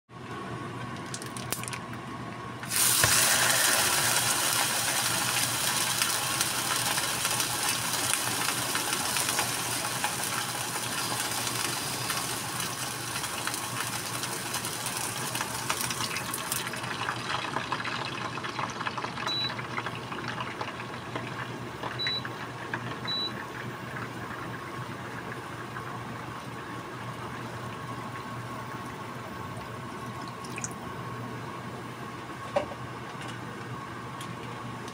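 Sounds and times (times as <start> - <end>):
meat sizzling in a frying pan: 2.7 - 19.1.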